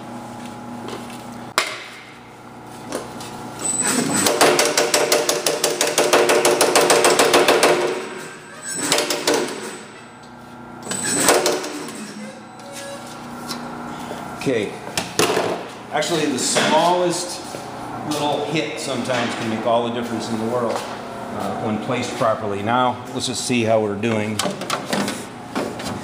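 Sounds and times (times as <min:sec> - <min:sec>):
power hammer striking metal panel: 0:04.2 - 0:08.2.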